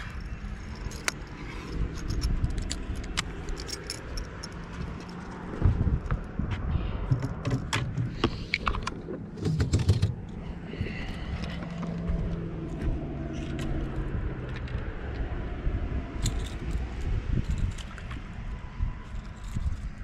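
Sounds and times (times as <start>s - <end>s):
fishing gear handling noise: 0.0s - 5.6s, 7.0s - 15.2s, 16.2s - 20.0s
rubbing and low thumps: 4.7s - 14.3s
clicks and knocks: 7.0s - 10.4s.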